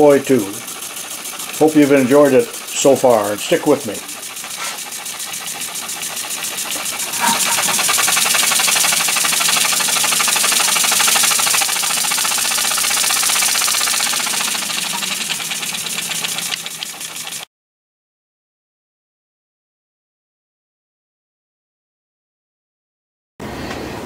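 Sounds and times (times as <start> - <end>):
model steam engine puffing: 0.0 - 17.5.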